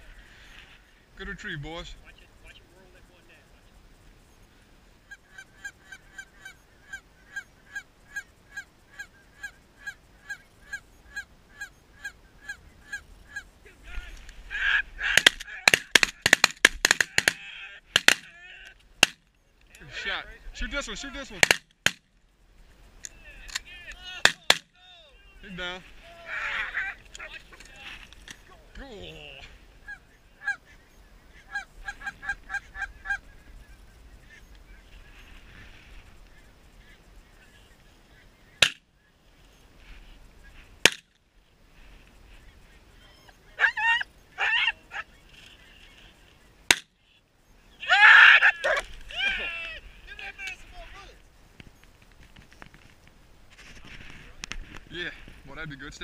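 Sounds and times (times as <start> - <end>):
goose honking: 5.0 - 16.3, 26.0 - 27.7, 29.8 - 33.2
geese honking: 5.0 - 18.8, 23.2 - 28.2, 29.0 - 38.8, 42.4 - 47.2.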